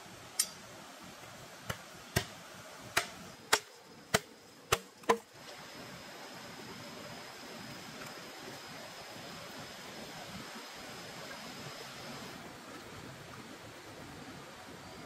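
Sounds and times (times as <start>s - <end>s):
knife chopping bamboo: 3.0s - 5.2s.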